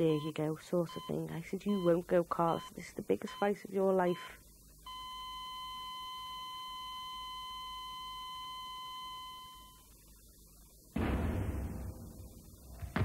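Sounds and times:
heart monitor flatline beep: 0.0s - 9.9s
loud low thud: 11.0s - 13.0s.

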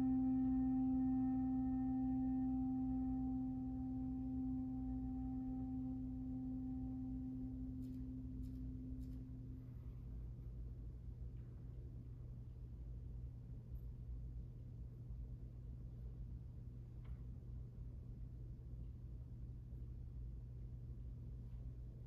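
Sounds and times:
flute holding a low note: 0.0s - 9.7s.

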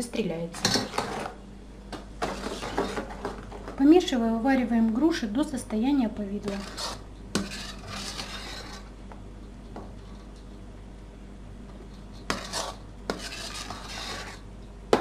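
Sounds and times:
metal spoon scraping basin: 0.6s - 1.4s, 2.2s - 3.2s, 6.4s - 8.9s, 12.2s - 14.5s.

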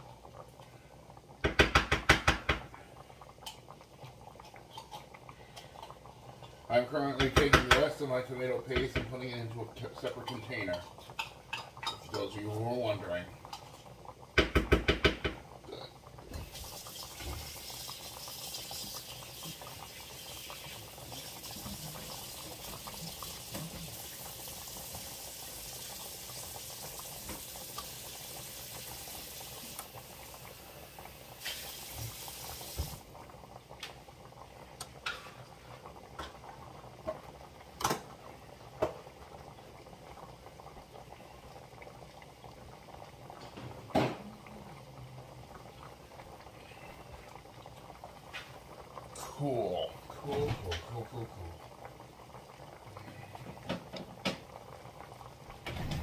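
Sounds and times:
liquid boiling in a pan: 0.0s - 56.0s
steady bubbling hiss: 0.0s - 56.0s.

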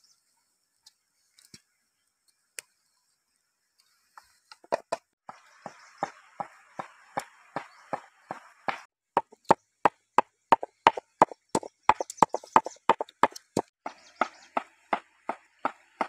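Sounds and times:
pestle pounding in stone mortar: 7.6s - 16.0s.

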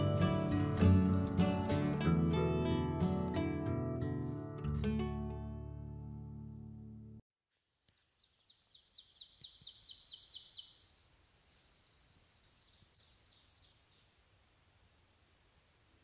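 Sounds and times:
guitar music: 0.0s - 7.2s
songbird trilling: 8.2s - 14.1s.

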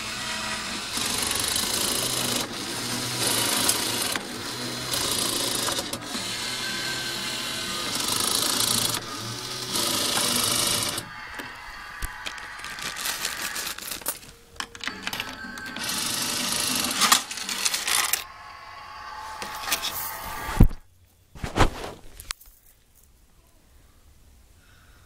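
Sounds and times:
toy claw machine clattering: 0.3s - 18.3s.

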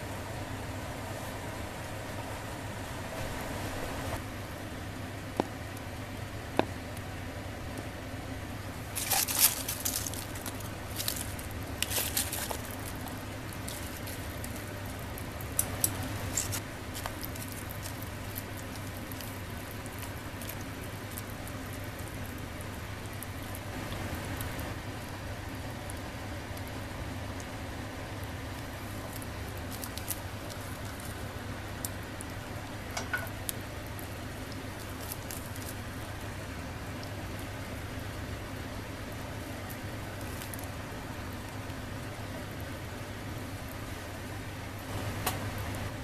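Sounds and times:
low steady hum: 0.0s - 46.0s
pot bubbling: 0.0s - 46.0s
leaves rustling and splashing: 8.8s - 24.8s, 28.6s - 37.1s.

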